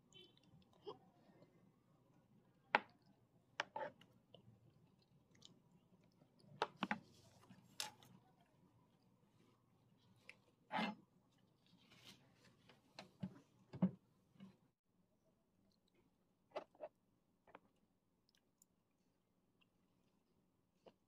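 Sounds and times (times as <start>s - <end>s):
soft chewing: 0.0s - 2.2s, 2.9s - 10.6s, 15.6s - 21.0s.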